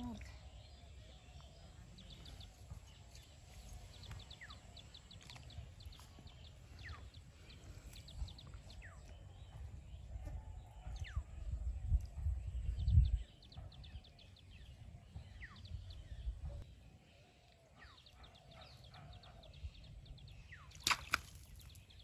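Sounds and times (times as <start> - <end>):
birds chipping and whistling: 0.0 - 22.0
wind rumble on microphone: 1.4 - 16.9.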